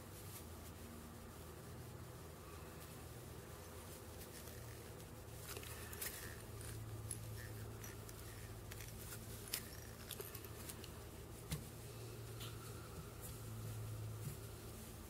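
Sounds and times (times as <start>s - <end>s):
steady low hum: 0.0s - 15.0s
clicks and rustles of hands: 3.7s - 14.8s.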